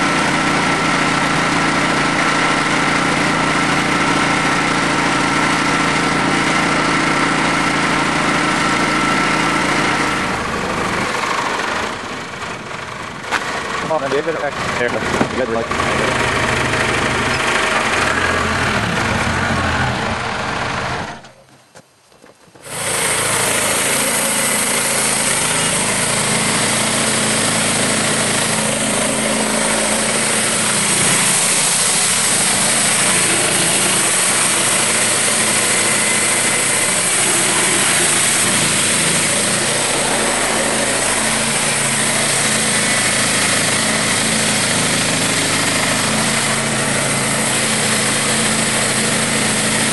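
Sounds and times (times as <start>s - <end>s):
diesel engine idling: 0.0s - 21.4s, 22.6s - 49.9s
sawmill engine running: 0.0s - 21.6s, 22.5s - 49.9s
saw blade cutting log: 22.5s - 49.9s.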